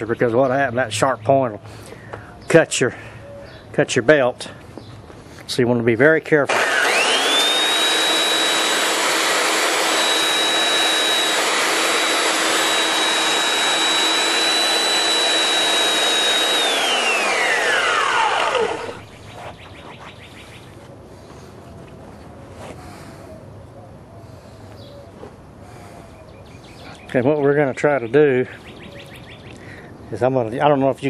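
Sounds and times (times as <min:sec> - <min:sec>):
belt sander on glass: 0:06.5 - 0:19.5.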